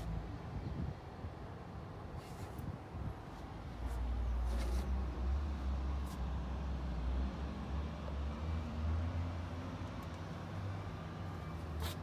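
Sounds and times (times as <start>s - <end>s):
wind buffeting microphone: 0.2s - 1.4s.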